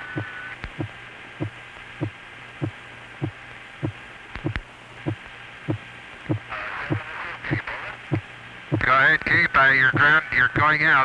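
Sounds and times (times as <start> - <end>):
radio hiss: 0.0 - 11.0
heartbeat thuds: 0.1 - 7.0.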